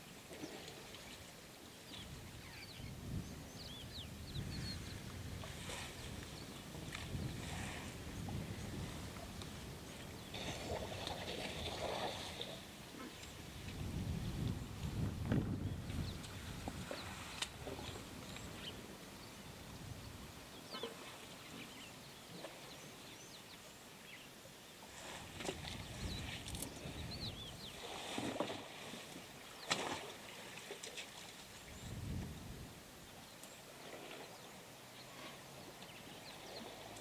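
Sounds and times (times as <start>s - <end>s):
small birds chirping: 1.8s - 2.9s
water splashes: 10.2s - 12.8s, 27.7s - 31.6s
mud and water sloshing: 10.3s - 12.6s, 27.8s - 31.4s.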